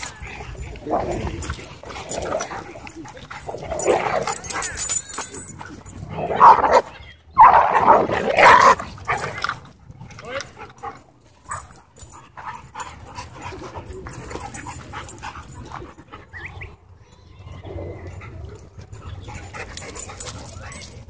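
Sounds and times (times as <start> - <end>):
dogs panting: 0.0 - 6.2, 8.9 - 17.0, 17.6 - 21.0
dog whining: 1.2 - 5.7.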